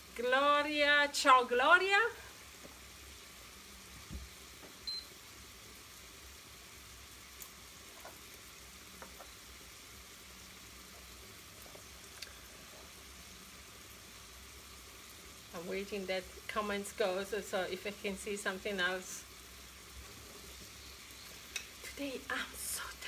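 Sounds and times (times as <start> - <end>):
vegetables sizzling in a pan: 0.0 - 23.0.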